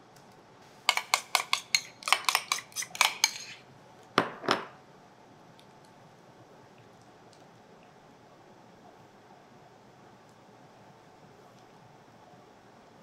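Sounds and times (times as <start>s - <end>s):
spoon tapping glass bowl: 0.9s - 3.5s.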